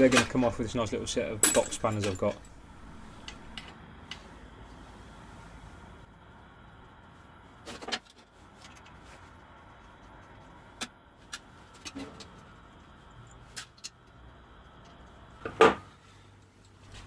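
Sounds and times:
light metal clinks and knocks: 1.3 - 3.7.

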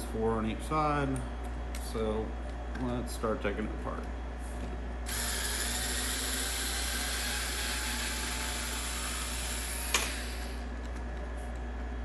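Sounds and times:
cordless driver running: 5.1 - 11.0.

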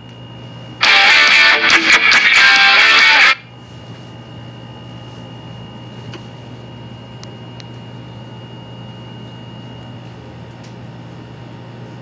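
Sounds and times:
high whine: 0.8 - 3.5.

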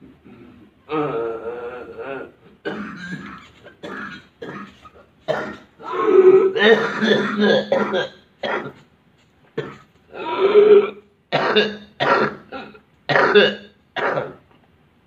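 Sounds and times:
person coughing: 2.2 - 6.0, 6.6 - 8.8, 9.6 - 9.9, 11.4 - 14.4.

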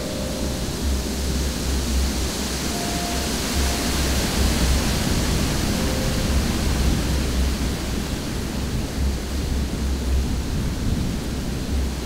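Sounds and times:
wind buffeting microphone: 4.0 - 12.0.

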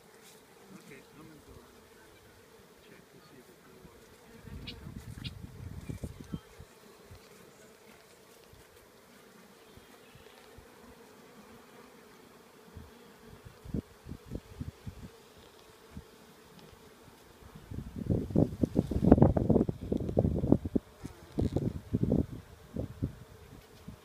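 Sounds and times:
bees humming: 0.0 - 18.2.

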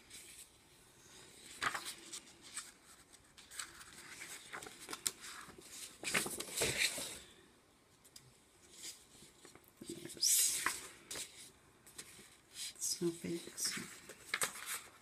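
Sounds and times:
paper rustling and sliding: 1.4 - 7.3, 10.3 - 15.0.

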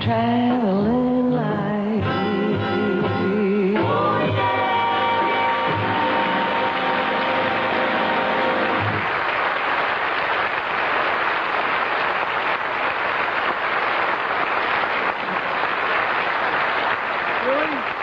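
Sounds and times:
studio audience applauding: 4.5 - 18.0.

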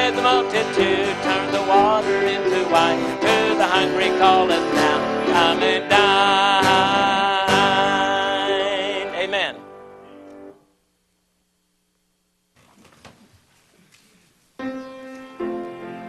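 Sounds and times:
man singing gospel: 0.0 - 9.7
acoustic guitar strumming: 0.0 - 10.6.

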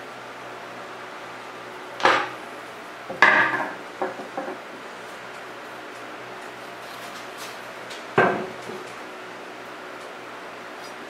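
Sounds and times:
sharp metal knocks: 2.0 - 2.4.

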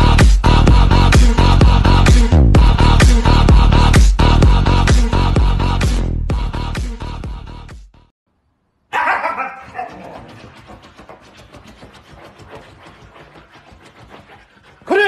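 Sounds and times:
dog scratching fabric mat: 9.7 - 15.0.

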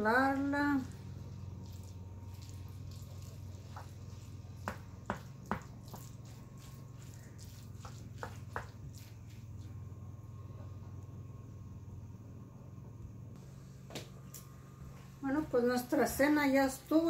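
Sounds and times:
low hum: 0.0 - 17.0
spoon stirring wet pasta: 1.2 - 9.8.

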